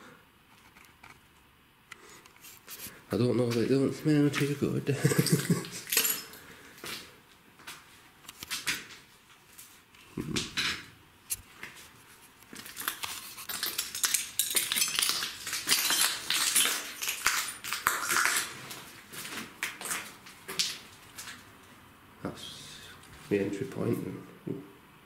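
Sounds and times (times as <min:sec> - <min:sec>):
glass crunching underfoot: 0:04.2 - 0:06.6, 0:12.4 - 0:21.5.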